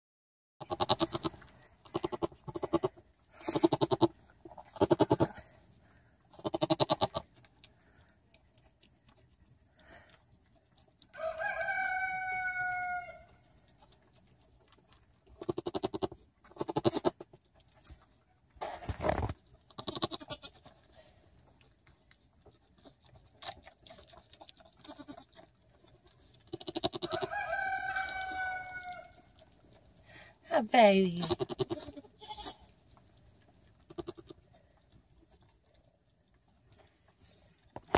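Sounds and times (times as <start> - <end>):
goats bleating: 0.6 - 4.1, 4.7 - 5.4, 6.3 - 7.2, 15.4 - 17.2, 19.8 - 20.6, 24.8 - 25.3, 26.5 - 29.2, 31.2 - 32.7, 33.9 - 34.4
rooster crowing: 11.1 - 13.3, 27.0 - 29.2.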